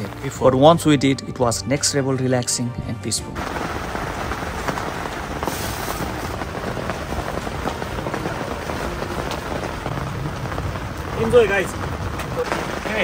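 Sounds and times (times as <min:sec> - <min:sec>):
rain on a tent: 0:00.0 - 0:01.6, 0:03.3 - 0:13.0
sharp raindrops landing: 0:03.4 - 0:13.0.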